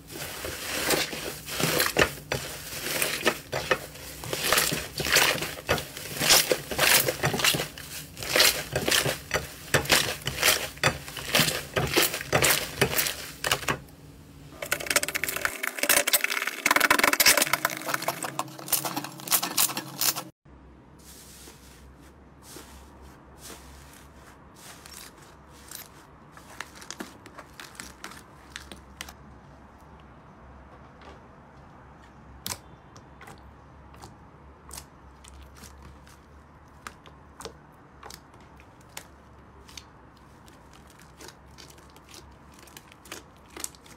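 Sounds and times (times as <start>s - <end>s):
slime crackling and popping: 36.7s - 43.9s.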